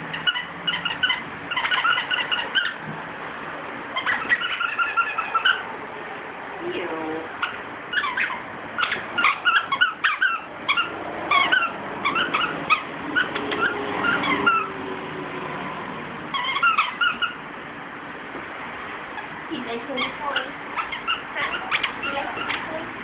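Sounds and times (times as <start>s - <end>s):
squeaky toy squeaking: 0.0s - 2.8s, 3.9s - 5.7s, 7.4s - 14.7s, 16.3s - 17.4s, 19.9s - 22.8s.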